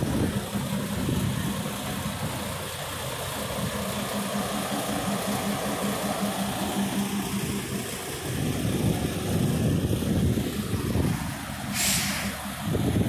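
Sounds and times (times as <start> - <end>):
truck diesel engine idling: 0.0 - 13.0.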